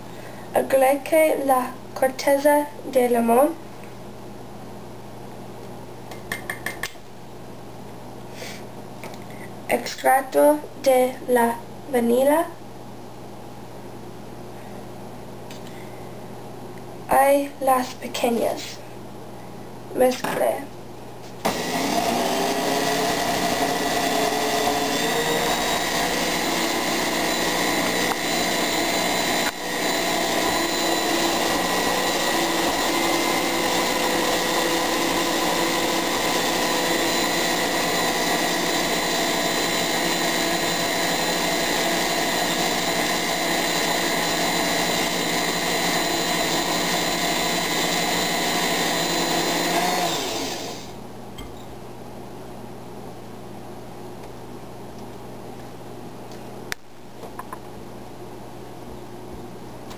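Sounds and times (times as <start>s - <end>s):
electric mixer motor whine: 21.4s - 51.0s.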